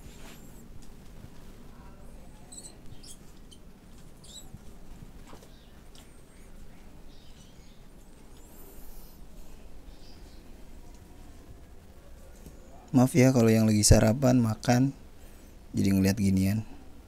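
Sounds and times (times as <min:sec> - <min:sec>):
mouse squeaking: 0:02.4 - 0:04.6.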